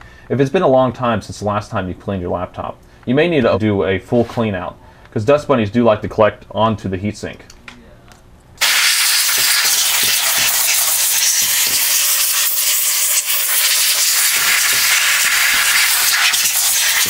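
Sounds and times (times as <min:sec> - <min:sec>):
compressed air spray hiss: 0:08.6 - 0:17.0.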